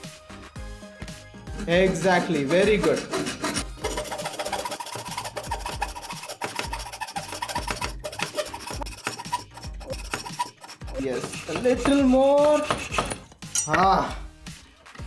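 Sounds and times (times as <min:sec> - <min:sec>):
hand saw cutting wood: 0:01.5 - 0:13.3.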